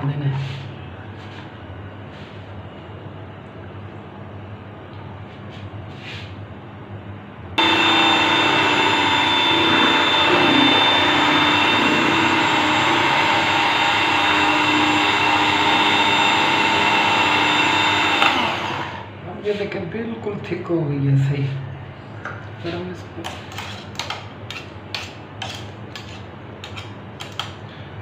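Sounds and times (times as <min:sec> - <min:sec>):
electric blender motor whining: 0:07.6 - 0:19.1.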